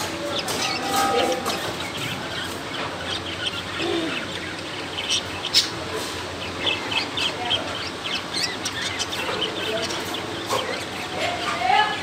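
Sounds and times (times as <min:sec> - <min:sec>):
cockatiels chirping: 0:00.0 - 0:11.6.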